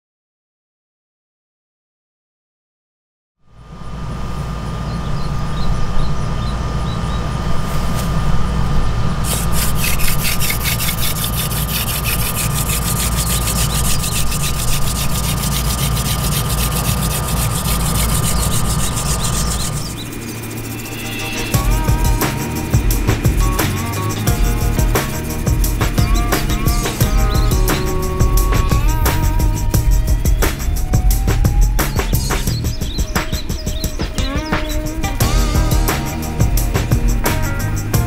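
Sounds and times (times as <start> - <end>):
steady low hum: 3.4 - 38.0
wooden spindle grinding on board: 9.2 - 29.7.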